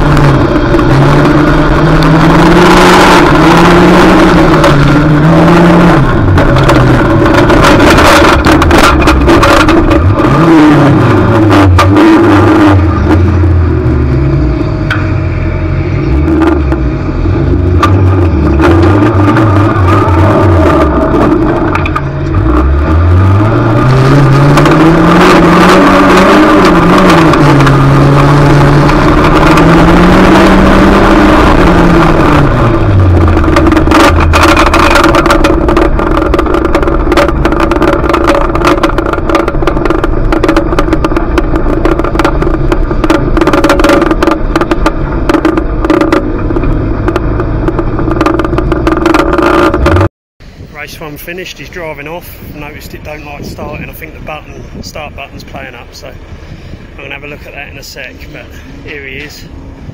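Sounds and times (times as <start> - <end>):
rattling and knocking: 0.0 - 12.1, 24.0 - 50.1
race car engine revving: 0.0 - 50.1, 50.7 - 59.9.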